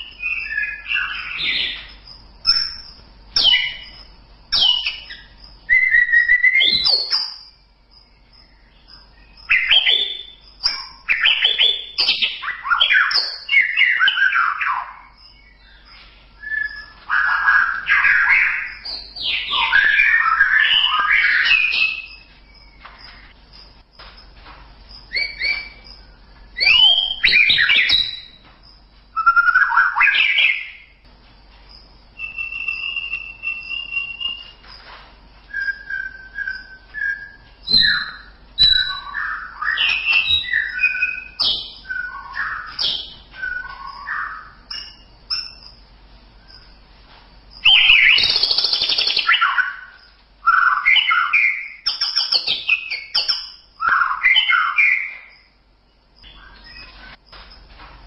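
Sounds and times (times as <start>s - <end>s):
bird singing whistled phrases: 0.0s - 7.5s, 9.2s - 22.8s, 25.1s - 25.8s, 26.6s - 28.4s, 29.2s - 31.0s, 32.2s - 34.6s, 35.5s - 45.6s, 47.6s - 55.4s.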